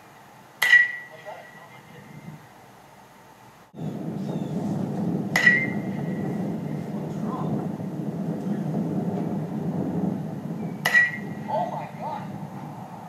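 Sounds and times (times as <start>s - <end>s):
metal bat striking ball: 0.6s - 1.1s, 5.3s - 6.0s, 10.8s - 11.4s
low background rumble: 3.6s - 13.0s.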